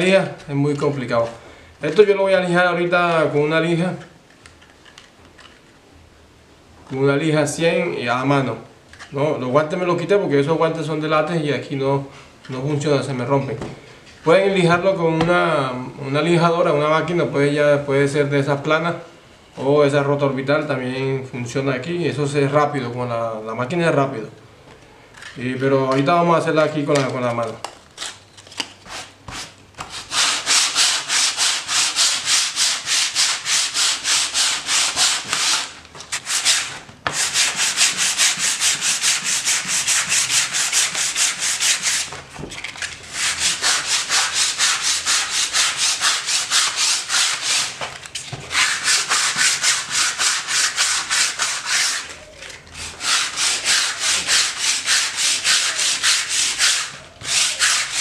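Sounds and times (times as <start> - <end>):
sandpaper scratching hard filler: 28.9 - 42.2, 43.0 - 47.8, 48.5 - 52.2, 52.8 - 58.0.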